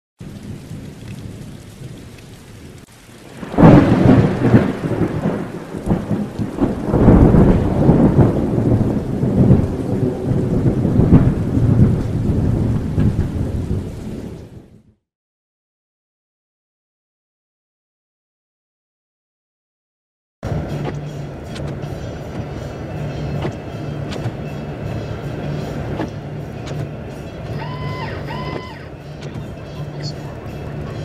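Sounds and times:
rumbling thunder: 0.2s - 15.0s
steady rain: 0.2s - 15.0s, 20.4s - 31.0s.

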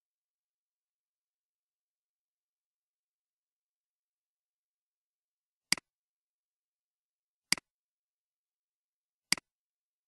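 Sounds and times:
computer mouse clicking: 9.3s - 9.5s.

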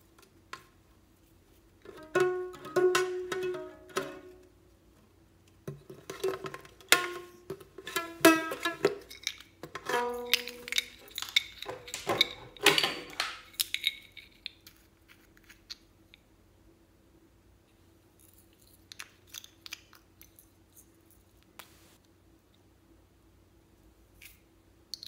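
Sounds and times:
toy guitar strings plucked: 6.9s - 12.9s.

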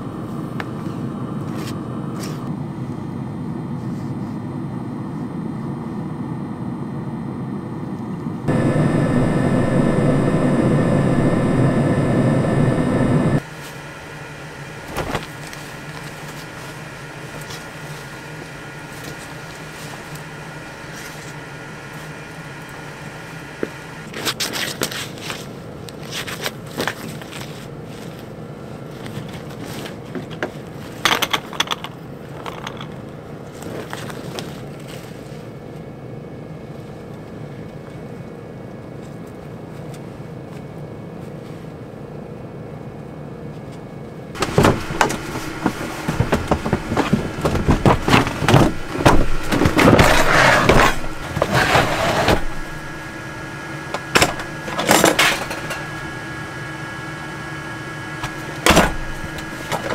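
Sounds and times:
steady hum: 0.0s - 59.9s
gear scraping and knocking: 44.4s - 52.9s.

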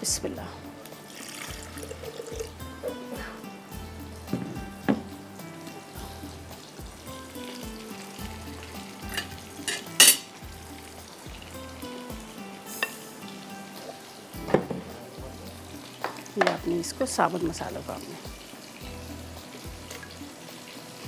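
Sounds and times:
faint frying sizzle: 0.0s - 21.0s
spatula clinking against glass: 9.0s - 10.3s, 12.7s - 13.0s.

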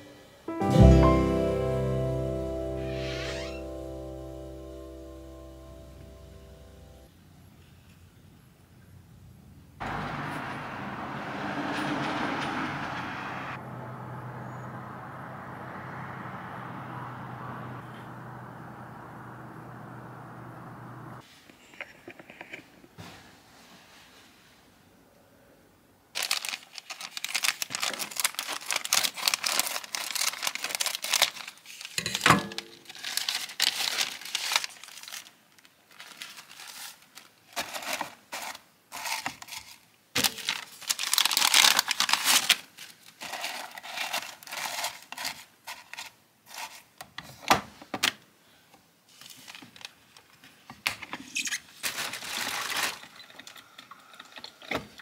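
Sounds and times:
paper bag crinkling: 26.2s - 46.8s, 51.5s - 53.6s.

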